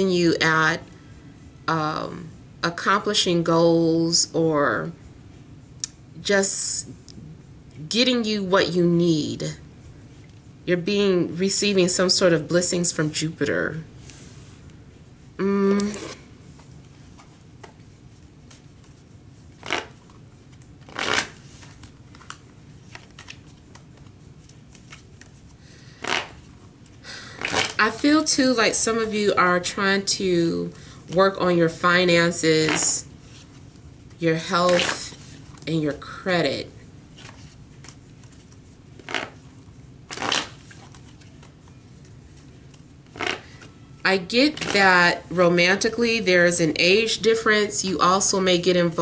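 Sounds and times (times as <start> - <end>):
cards being shuffled: 15.8 - 28.1, 34.7 - 35.7, 37.1 - 43.8.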